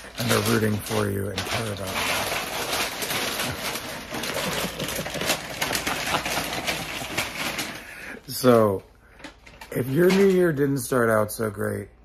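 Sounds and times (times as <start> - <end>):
wrapping paper crinkling: 0.0 - 8.8.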